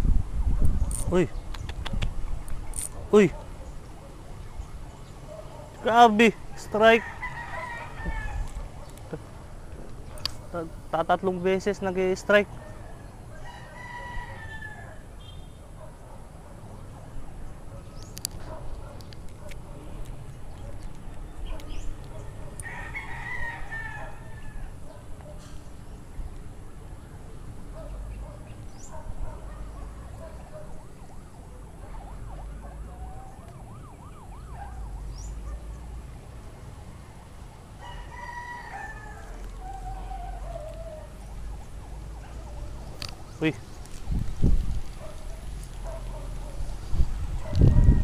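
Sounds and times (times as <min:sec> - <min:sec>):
rooster crowing: 0:06.6 - 0:08.6, 0:12.6 - 0:15.2, 0:22.6 - 0:24.8, 0:37.8 - 0:41.2, 0:47.4 - 0:48.0
distant siren warbling: 0:30.4 - 0:42.2.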